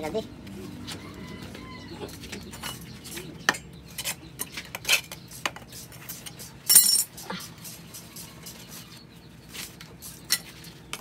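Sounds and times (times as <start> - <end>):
rod clinking inside metal muffler: 6.7 - 7.1.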